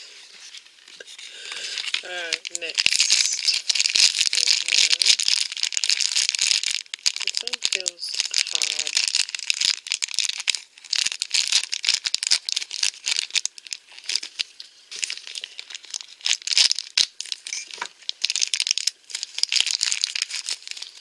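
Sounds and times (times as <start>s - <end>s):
plastic bag crinkling: 0.0s - 21.0s
plastic bag being cut: 1.6s - 13.4s.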